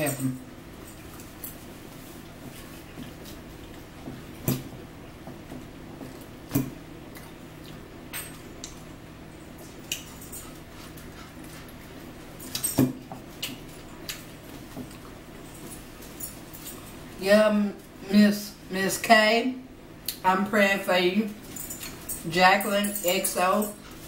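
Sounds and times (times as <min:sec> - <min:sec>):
steady low hum: 0:00.0 - 0:24.0
chewing: 0:07.1 - 0:07.9, 0:09.6 - 0:12.6, 0:13.3 - 0:17.0.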